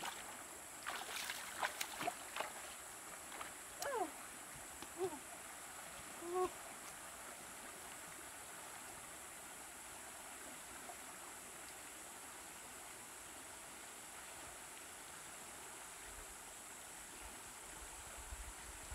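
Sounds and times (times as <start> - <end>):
river water running over shallows: 0.0 - 18.9.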